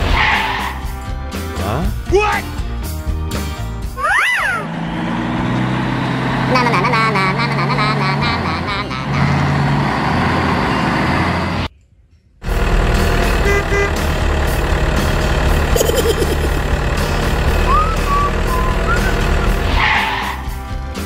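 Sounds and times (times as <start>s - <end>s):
heavy truck engine rumble: 3.5s - 11.7s, 12.4s - 21.0s.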